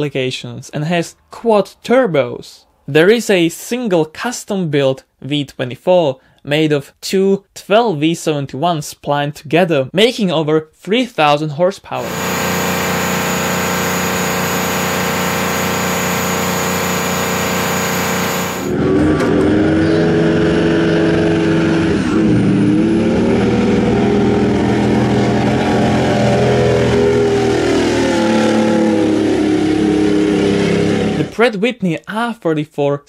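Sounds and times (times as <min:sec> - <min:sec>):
diesel generator running: 0:12.0 - 0:18.9
high whine: 0:12.0 - 0:18.9
truck engine under full load: 0:12.0 - 0:31.3.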